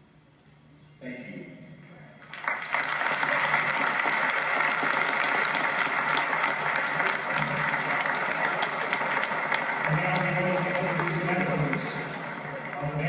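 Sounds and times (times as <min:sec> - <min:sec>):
crowd clapping: 0:02.2 - 0:13.0.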